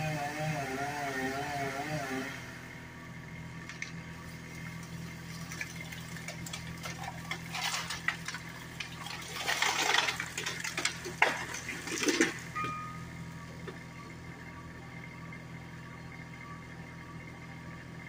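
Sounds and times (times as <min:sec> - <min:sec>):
low engine hum: 0:00.0 - 0:18.0
tree cracking and crashing: 0:03.7 - 0:12.6.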